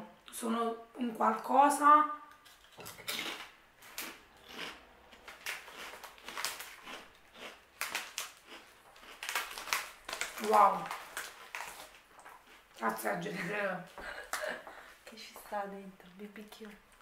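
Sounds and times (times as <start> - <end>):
crisps being chewed: 2.4 - 12.9.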